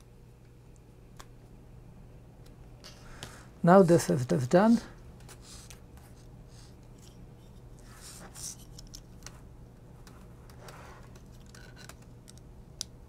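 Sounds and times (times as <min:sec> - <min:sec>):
small plastic parts scratching and clicking: 0:07.8 - 0:09.4, 0:10.0 - 0:12.5.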